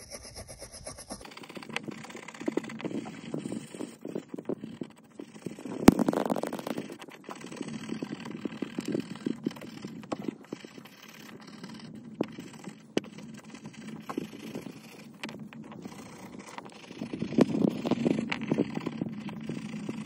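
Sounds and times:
wire brush scrubbing metal: 0.0s - 1.2s.

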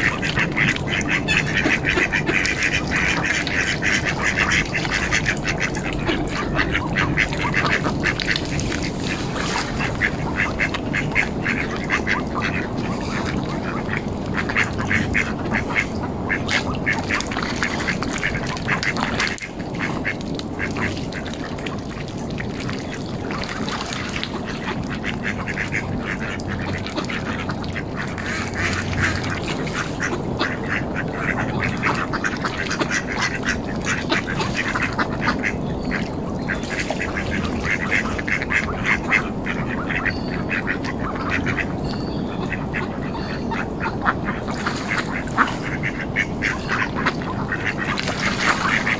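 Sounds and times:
ducks quacking: 0.0s - 48.9s.

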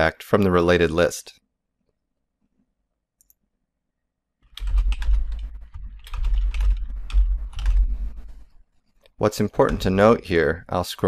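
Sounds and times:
typing on computer keyboard: 4.4s - 8.4s.

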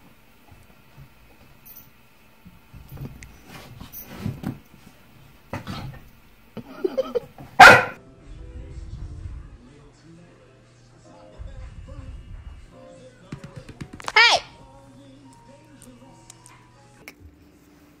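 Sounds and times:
loud dog bark: 7.6s - 8.0s.

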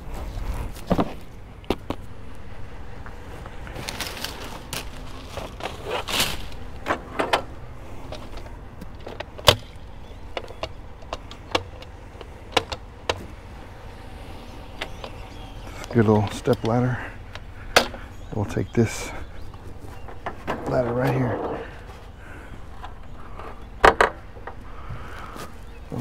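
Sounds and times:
scraping and rustling of junk: 3.0s - 26.0s
sharp clicks and knocks: 8.1s - 13.4s, 22.8s - 24.6s.

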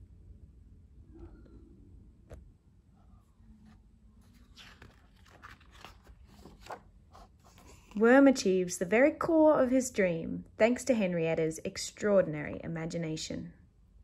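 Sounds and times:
book page turning: 3.5s - 8.0s.

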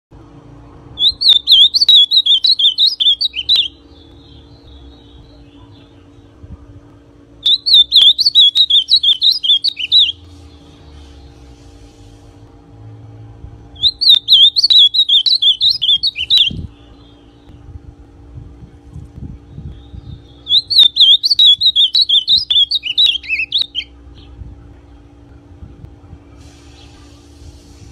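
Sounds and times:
bird singing warbled notes: 1.0s - 6.4s, 7.4s - 10.6s, 13.8s - 17.7s, 19.5s - 24.4s.

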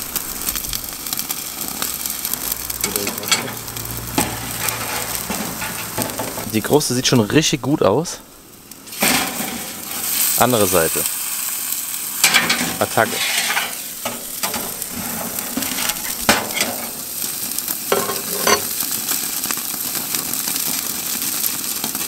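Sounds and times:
steak sizzling on grill: 0.0s - 22.0s
metal grill grate clicks: 2.7s - 6.5s, 12.2s - 18.8s.

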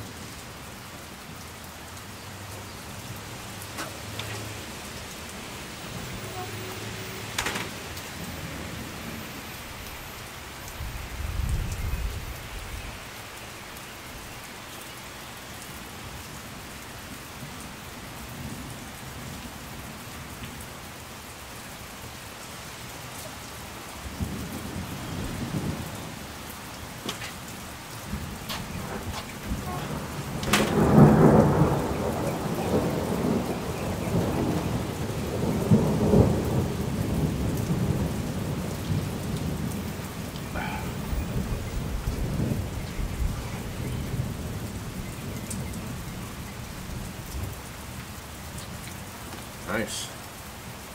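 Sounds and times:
steady rain falling: 0.0s - 50.9s
thunder rumbling: 3.3s - 13.1s, 23.9s - 47.6s
sharp thunderclap: 28.0s - 39.8s.

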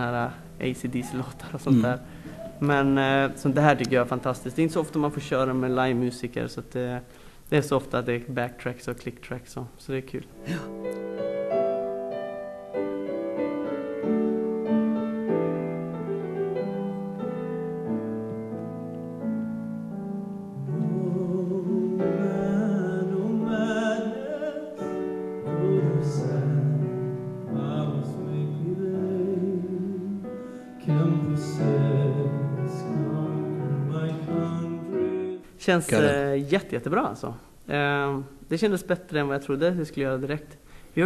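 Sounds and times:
piano accompaniment: 0.0s - 6.3s, 10.4s - 36.6s
man singing with vibrato: 20.6s - 36.3s.

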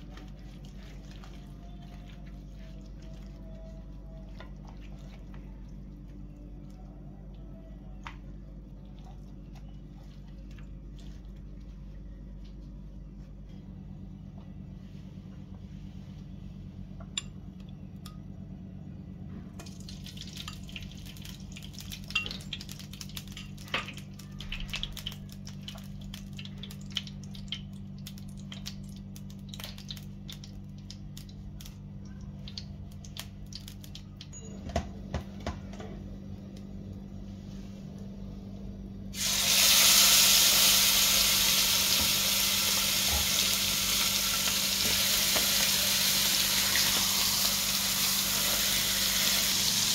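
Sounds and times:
low steady hum: 0.0s - 49.9s
faint crackles and clicks: 20.7s - 34.4s
chicken sizzling on grill pan: 39.2s - 49.9s.

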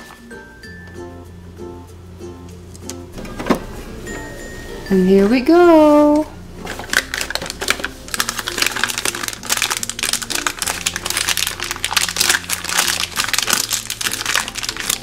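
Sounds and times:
plastic bag crinkling: 6.6s - 15.0s
plastic toy pieces shifting: 6.7s - 15.0s.

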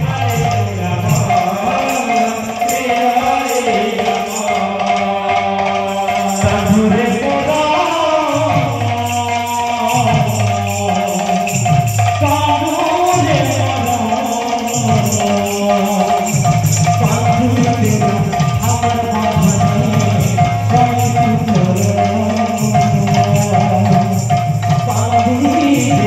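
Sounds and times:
drum strokes: 0.0s - 26.0s
jingling hand cymbals: 0.0s - 26.0s.

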